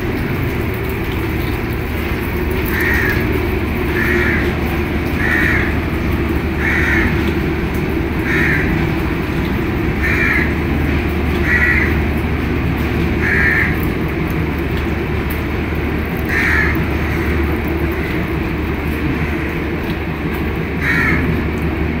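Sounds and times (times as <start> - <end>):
low equipment hum: 0.0 - 22.0
crow cawing: 2.6 - 7.4, 8.2 - 9.0, 9.9 - 10.7, 11.4 - 12.1, 13.2 - 13.8, 16.3 - 18.4, 19.1 - 19.7, 20.7 - 21.4.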